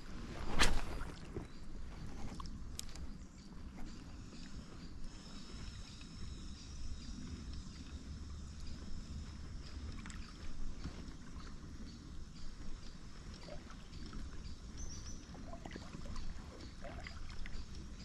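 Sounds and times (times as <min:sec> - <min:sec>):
steady low rumble: 0:00.0 - 0:18.0
river water lapping and splashing: 0:00.1 - 0:03.0, 0:07.8 - 0:18.0.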